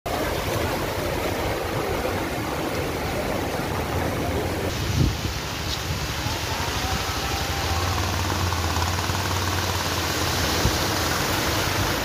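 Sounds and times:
water splashing from wheels: 0:00.1 - 0:12.0
car engine humming: 0:06.7 - 0:12.0.

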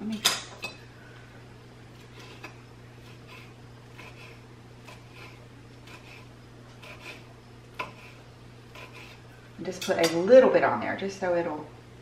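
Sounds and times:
knife slicing on cutting board: 0:02.0 - 0:09.2.

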